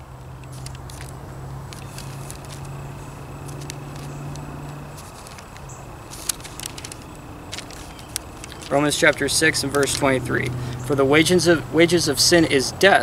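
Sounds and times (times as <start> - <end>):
steady low hum: 0.0 - 12.9
thin pages rustling: 0.2 - 10.5.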